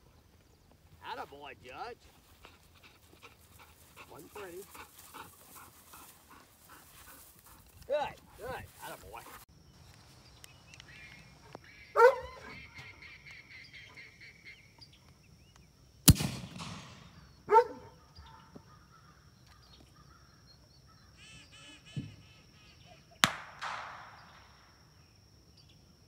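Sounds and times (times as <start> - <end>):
sharp bangs with echo: 16.1 - 17.3, 23.2 - 24.6
honk-like calls: 21.2 - 22.9.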